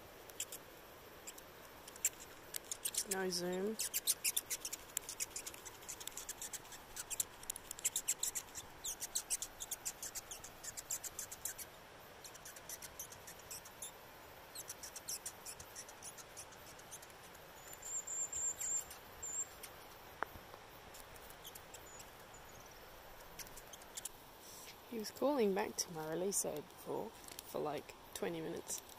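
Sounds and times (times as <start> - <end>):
bird calling in high-pitched chips: 0.3 - 0.6, 1.2 - 20.0, 20.9 - 24.8.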